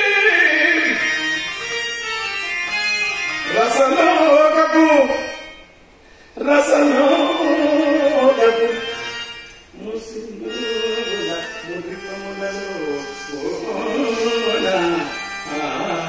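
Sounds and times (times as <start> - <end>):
person singing: 0.0 - 1.1, 6.4 - 9.0, 9.8 - 16.0
musical accompaniment: 0.0 - 16.0.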